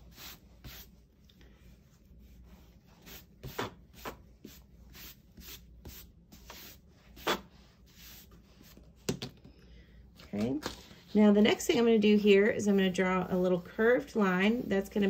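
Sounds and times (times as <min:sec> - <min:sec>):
eraser rubbing on paper: 0:02.2 - 0:08.4.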